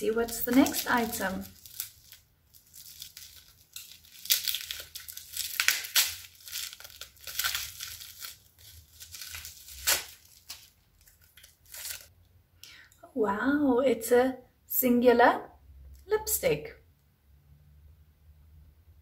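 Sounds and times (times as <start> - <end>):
plastic packaging crinkling and tearing: 0.0 - 12.1.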